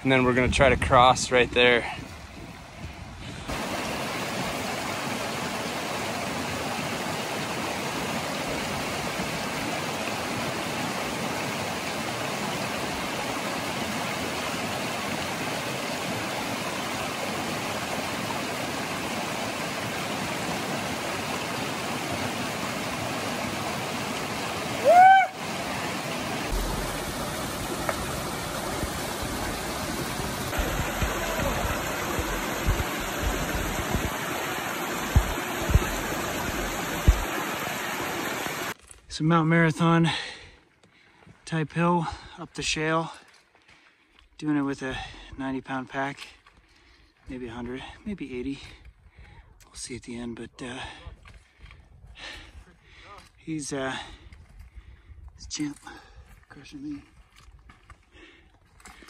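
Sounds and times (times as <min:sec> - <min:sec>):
stream rushing: 0:03.4 - 0:38.8
high-pitched cry: 0:24.8 - 0:25.4.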